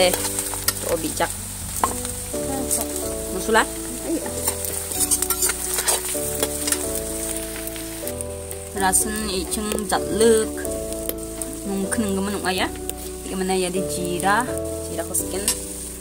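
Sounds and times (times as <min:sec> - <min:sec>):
onions sizzling in hot oil: 0:00.0 - 0:16.0
soft background music: 0:00.0 - 0:16.0
metal spoon scraping a wok: 0:04.2 - 0:08.1.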